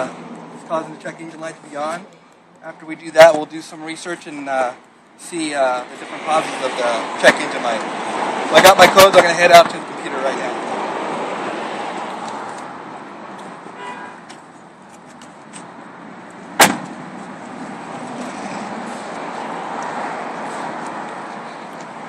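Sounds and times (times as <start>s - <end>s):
outdoor traffic noise: 0.0s - 22.0s
car door shutting: 16.6s - 17.0s.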